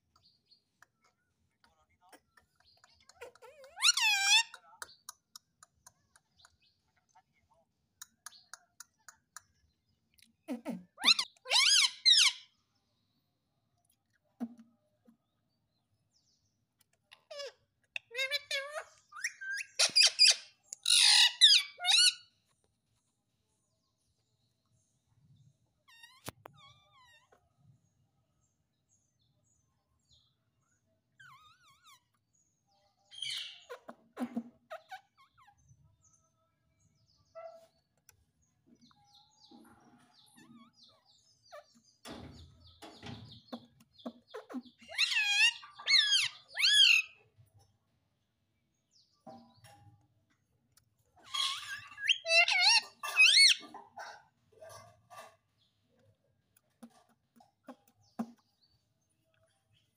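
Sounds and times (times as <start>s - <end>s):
parrot chirping and chattering: 1.8s - 7.2s, 8.0s - 12.6s, 16.8s - 22.5s, 25.8s - 27.4s, 31.1s - 32.4s, 33.1s - 35.9s, 37.3s - 47.5s, 50.8s - 59.9s
parakeet squawking: 3.2s - 4.6s, 11.0s - 12.5s, 17.3s - 22.2s, 43.5s - 47.2s, 51.2s - 53.8s
parrot loud wavering calls: 3.5s - 4.5s, 11.0s - 12.5s, 17.3s - 22.2s, 44.8s - 47.2s, 51.2s - 53.6s.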